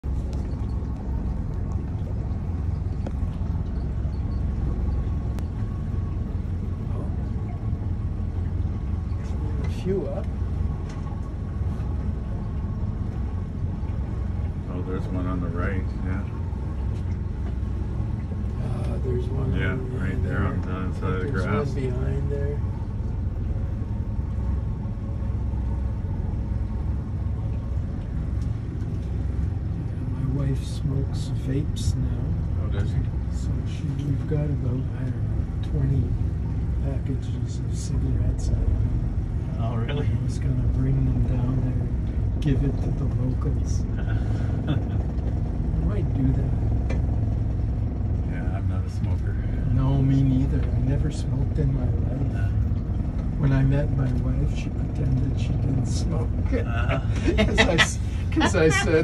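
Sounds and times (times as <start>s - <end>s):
motorboat engine rumbling: 0.0s - 59.0s
water and wind hiss: 0.0s - 59.0s.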